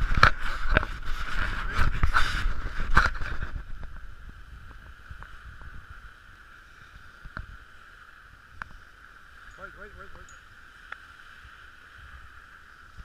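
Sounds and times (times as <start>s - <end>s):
wind buffeting microphone: 0.0s - 7.7s
faint hiss: 0.0s - 13.0s.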